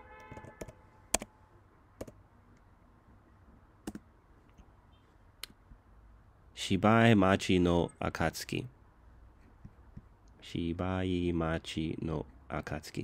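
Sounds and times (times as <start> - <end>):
keyboard keys clicking: 0.3 - 1.3, 3.8 - 4.0.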